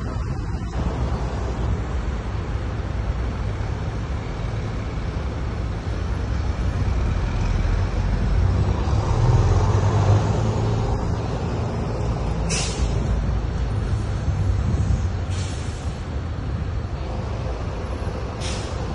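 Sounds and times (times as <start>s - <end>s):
low rumble of road noise: 0.0s - 18.9s
vehicle passing: 6.7s - 15.3s.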